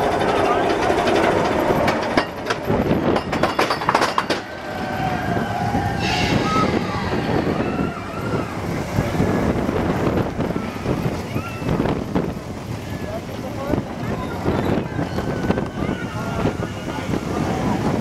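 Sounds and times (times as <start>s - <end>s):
roller coaster on steel track: 0.0s - 18.0s.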